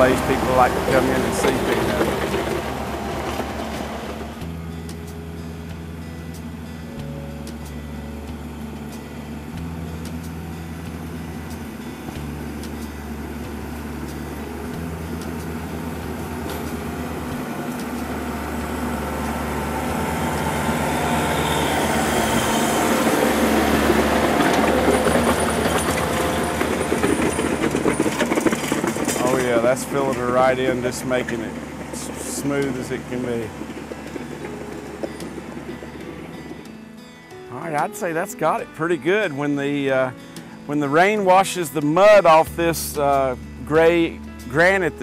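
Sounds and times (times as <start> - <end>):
gravel crunching and scraping: 0.0 - 4.5, 9.7 - 36.9
tractor diesel engine running: 0.0 - 45.0.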